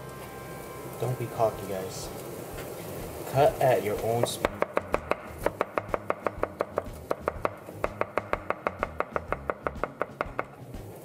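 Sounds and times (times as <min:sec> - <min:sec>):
knife chopping on cutting board: 0:04.2 - 0:10.5.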